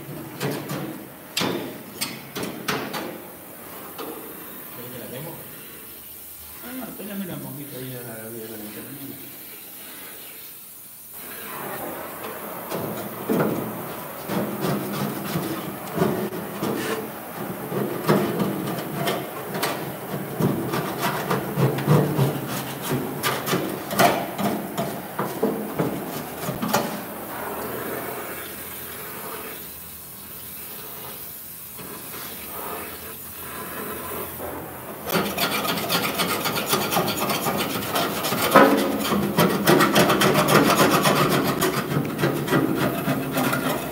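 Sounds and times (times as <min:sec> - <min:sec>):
scraping of rusted sheet metal: 0:11.2 - 0:28.5, 0:31.8 - 0:43.9
loud rasping: 0:35.1 - 0:43.9.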